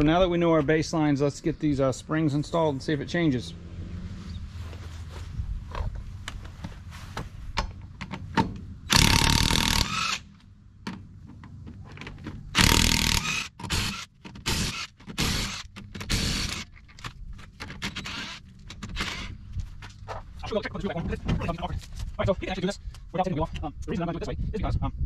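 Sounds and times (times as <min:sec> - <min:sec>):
impact wrench hammering: 0:08.9 - 0:10.2.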